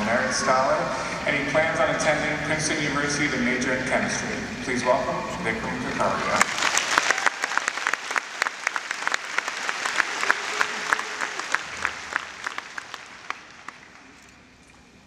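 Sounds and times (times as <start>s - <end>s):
audience applauding: 6.3s - 14.2s.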